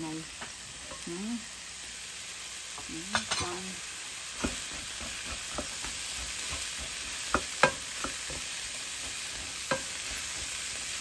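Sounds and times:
vegetables sizzling in oil: 0.0 - 11.0
spatula knocking against a pan: 4.4 - 10.7.

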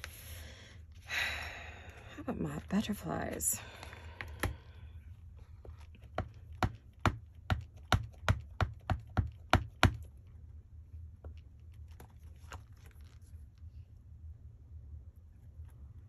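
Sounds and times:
rubber stamp tapping ink pad: 6.1 - 10.1.

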